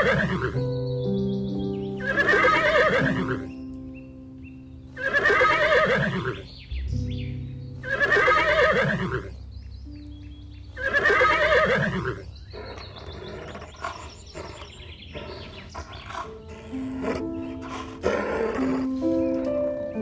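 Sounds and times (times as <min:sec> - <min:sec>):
animal wavering cry: 0:00.0 - 0:00.6, 0:02.0 - 0:03.5, 0:05.0 - 0:06.5, 0:07.8 - 0:09.3, 0:10.8 - 0:19.1
background music: 0:00.0 - 0:20.0.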